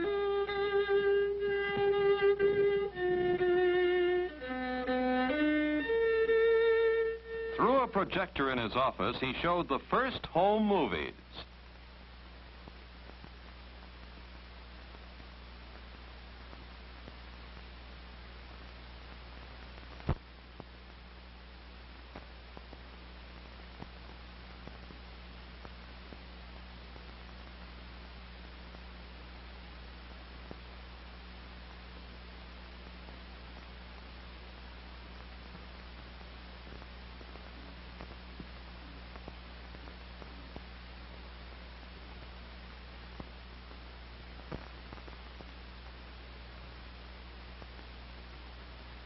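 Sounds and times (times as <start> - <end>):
film soundtrack hiss: 0.0 - 49.0
low mains hum: 0.0 - 49.0
dust crackle clicks and pops: 18.5 - 21.0, 22.0 - 26.3, 32.8 - 48.7.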